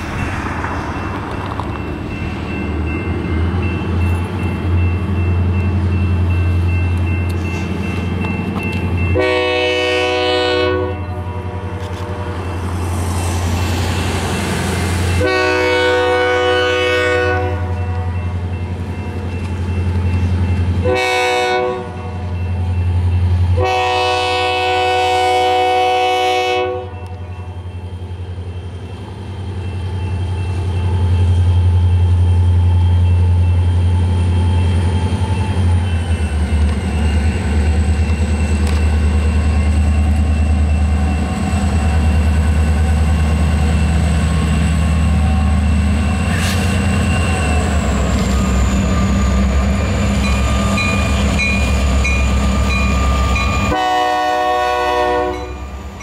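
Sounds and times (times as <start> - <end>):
low rumble of train: 0.0 - 56.0
locomotive air horn blasts: 9.2 - 12.5, 15.2 - 18.1, 20.8 - 22.2, 23.6 - 27.1, 53.6 - 55.7.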